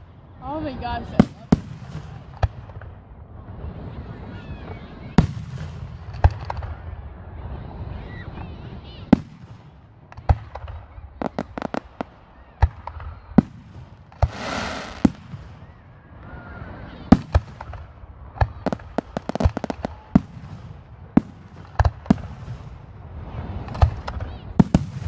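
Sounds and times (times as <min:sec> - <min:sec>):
fireworks bangs and cracks: 0:00.0 - 0:07.5, 0:08.3 - 0:25.0
rushing hiss: 0:14.2 - 0:15.4.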